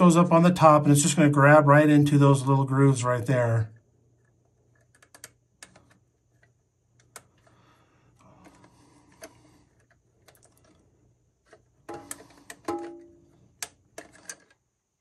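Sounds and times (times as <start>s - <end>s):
plastic parts clicking: 4.2s - 7.6s, 8.2s - 10.8s, 11.4s - 14.6s.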